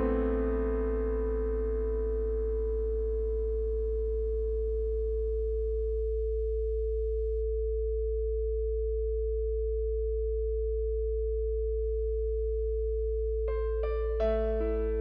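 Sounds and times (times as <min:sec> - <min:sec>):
soft piano notes: 0:00.0 - 0:05.3, 0:13.5 - 0:15.0
deep low hum: 0:00.0 - 0:15.0.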